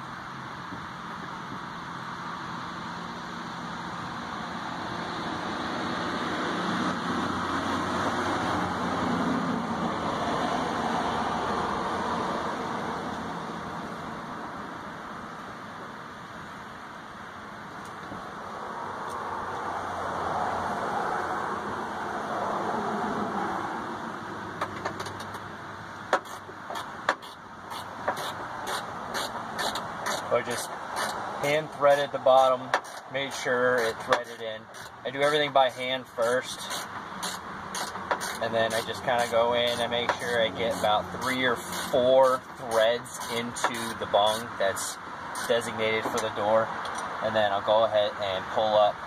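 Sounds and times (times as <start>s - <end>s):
steady background noise: 0.0s - 49.0s
vehicle passing by: 3.6s - 14.4s, 18.2s - 24.8s
faint low engine hum: 24.2s - 49.0s.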